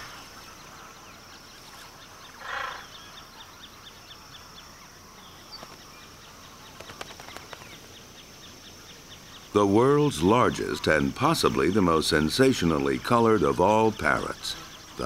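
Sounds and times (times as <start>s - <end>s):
macaw harsh squawk: 2.4s - 2.9s.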